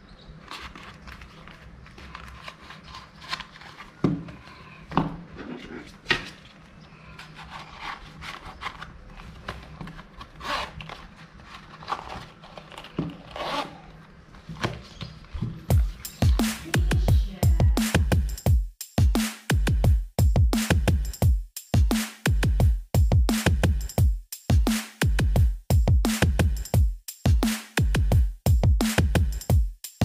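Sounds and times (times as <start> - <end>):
cards brushing in slots: 0.4 - 4.7
leather rubbing and scraping: 7.2 - 13.9
electronic music with beat: 15.7 - 30.0.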